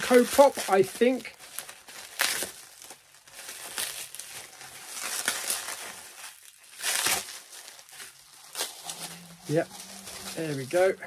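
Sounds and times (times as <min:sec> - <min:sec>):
bubble wrap crinkling: 0:00.0 - 0:11.0.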